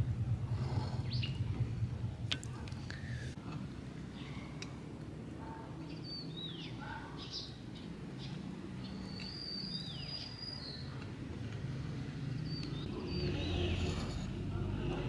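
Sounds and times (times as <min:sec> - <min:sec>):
low background noise: 0:00.0 - 0:15.0
small birds chirping: 0:00.5 - 0:01.6, 0:04.0 - 0:14.0.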